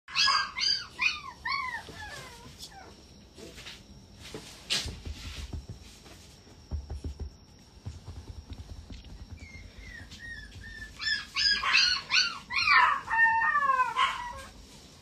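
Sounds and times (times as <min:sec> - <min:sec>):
puppy whimpering: 0:00.1 - 0:03.0, 0:09.4 - 0:14.5
puppy scuffling bumps: 0:04.2 - 0:11.8.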